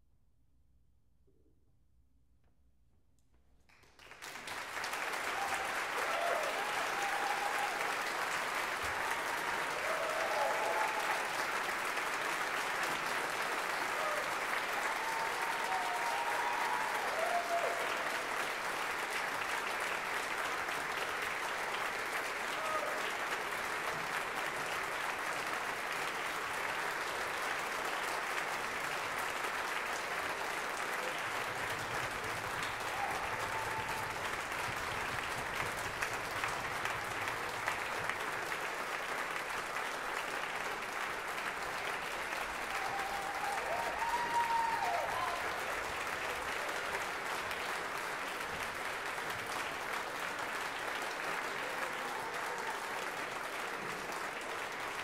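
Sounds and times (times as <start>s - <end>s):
audience applause: 3.7s - 55.0s
audience cheers: 4.8s - 11.8s, 13.5s - 18.5s, 22.5s - 23.1s, 31.0s - 38.2s, 42.4s - 46.9s, 51.6s - 53.2s.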